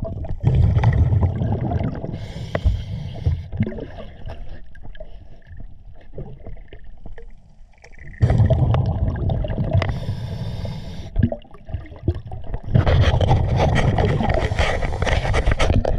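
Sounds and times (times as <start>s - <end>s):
exhaled bubbles rushing: 0.0s - 2.2s, 8.0s - 10.1s, 11.2s - 15.9s
diver inhaling through regulator: 2.1s - 3.5s, 9.8s - 11.2s, 13.5s - 15.7s.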